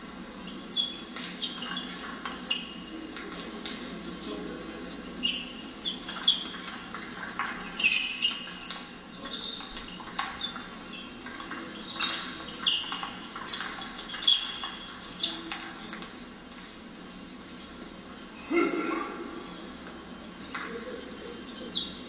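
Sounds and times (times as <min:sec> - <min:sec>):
shoes squeaking on floor: 0:00.4 - 0:03.6, 0:04.9 - 0:15.9, 0:21.4 - 0:22.0.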